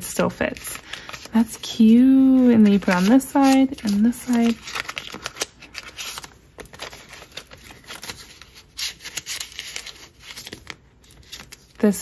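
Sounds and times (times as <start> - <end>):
vinyl sleeves and paper crinkling: 0.0 - 12.0.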